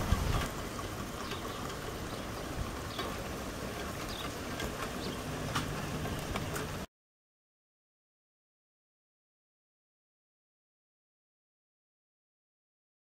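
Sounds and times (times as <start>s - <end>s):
steady rain falling: 0.0s - 6.9s
sharp drip clicks: 1.2s - 6.8s.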